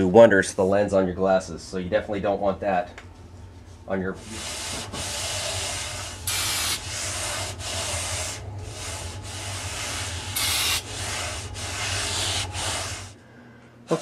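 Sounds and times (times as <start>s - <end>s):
scrubbing strokes: 4.2s - 13.2s
aerosol spray hissing: 6.2s - 7.4s, 9.8s - 13.2s.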